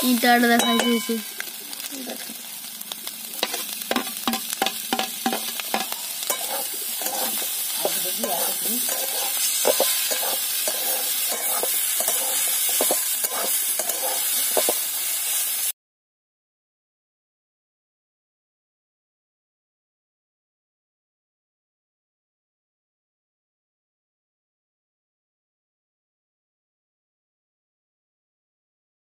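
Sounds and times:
food sizzling: 0.0s - 15.8s
metal spatula scraping wok: 3.4s - 15.7s.

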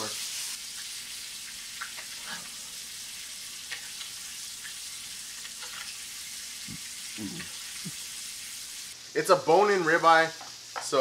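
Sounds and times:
meat sizzling in a skillet: 0.0s - 11.0s.

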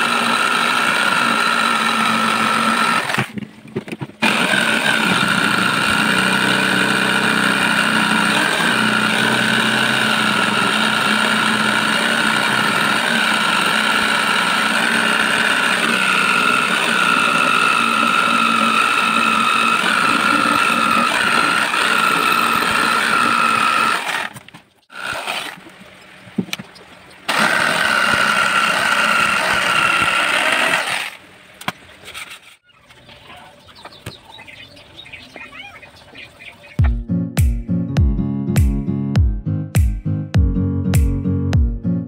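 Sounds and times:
jigsaw cutting wood: 0.0s - 3.4s, 4.2s - 25.7s, 27.3s - 31.2s.

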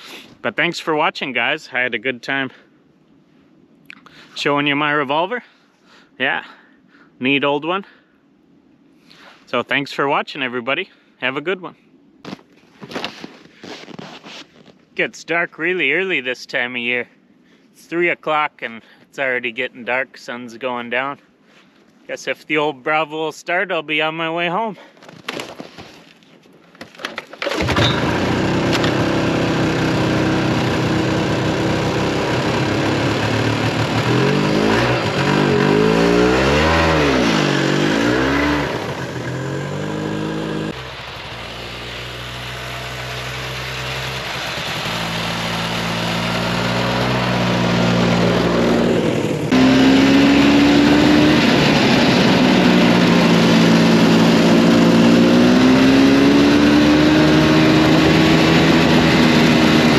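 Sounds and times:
snowmobile engine revving: 27.4s - 59.9s.

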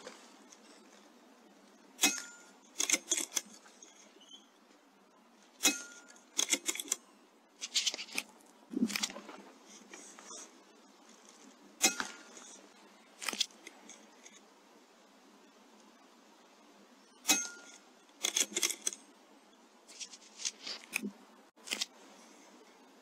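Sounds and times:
short metallic clicks and clatter: 2.0s - 4.0s.

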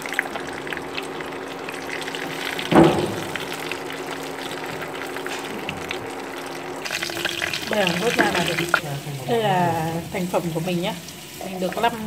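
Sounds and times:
oil sizzling and bubbling: 0.0s - 12.0s.

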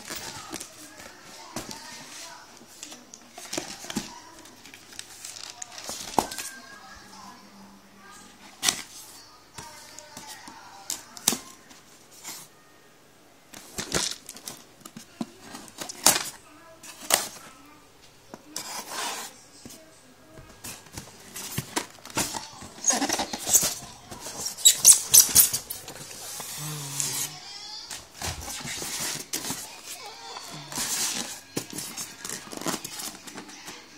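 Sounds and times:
tape and plastic tearing: 21.5s - 27.4s.

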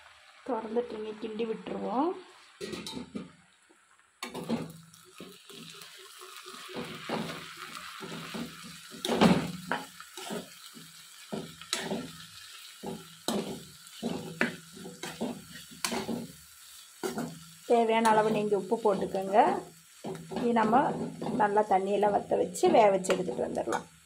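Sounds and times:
sizzle from hot pan: 0.0s - 24.0s
metal spoon scraping frying pan: 8.0s - 23.9s
spoon knocking against pan: 20.0s - 21.6s.

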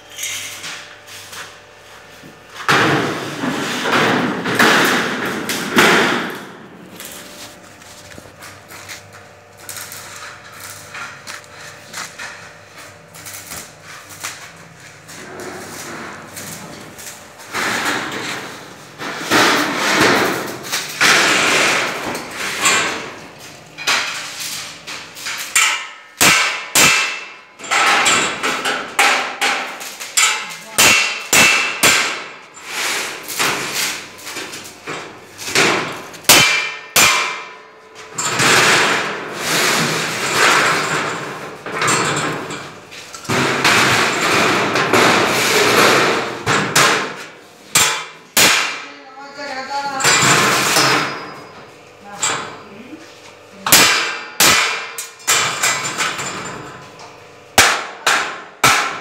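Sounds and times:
hammer striking sheet metal: 2.6s - 6.6s, 17.5s - 23.2s, 24.9s - 41.4s, 43.3s - 48.9s, 53.7s - 56.1s, 57.6s - 59.0s.

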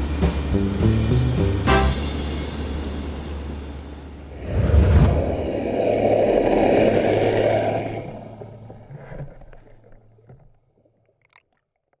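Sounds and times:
boat motor humming: 0.0s - 4.4s, 5.3s - 11.0s
churning water: 2.9s - 12.0s.

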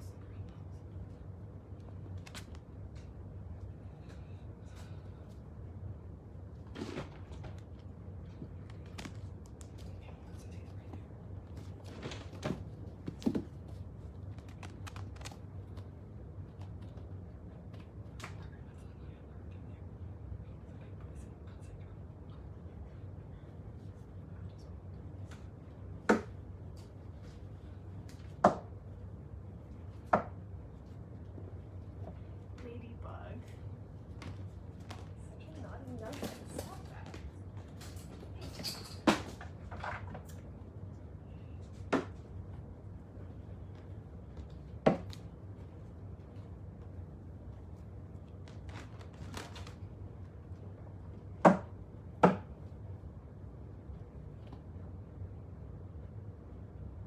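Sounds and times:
faint low hum: 0.0s - 57.0s.

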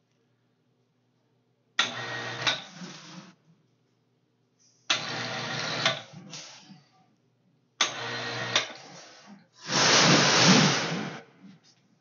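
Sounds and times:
electric hoist running: 1.8s - 3.2s, 4.9s - 6.0s, 7.8s - 11.4s.

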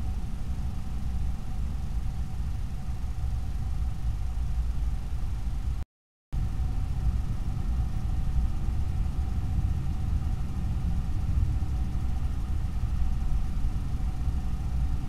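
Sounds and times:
low rumble with faint whine: 6.4s - 15.0s.

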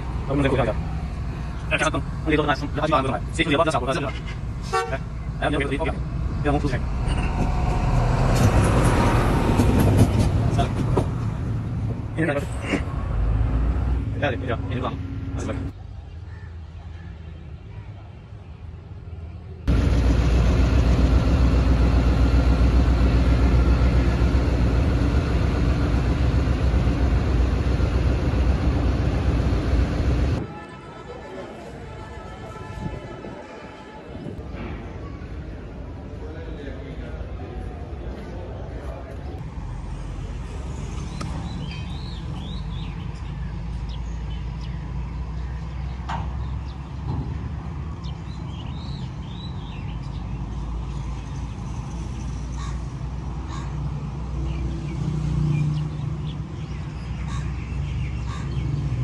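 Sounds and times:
locomotive engine rumbling: 0.0s - 15.7s, 19.7s - 30.7s
steady low rumble: 19.7s - 30.4s
birds chirping: 40.4s - 59.0s.

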